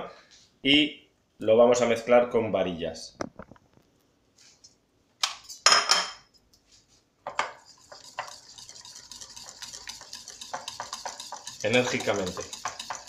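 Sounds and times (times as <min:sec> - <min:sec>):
whisk beating cream in bowl: 0:07.4 - 0:13.0.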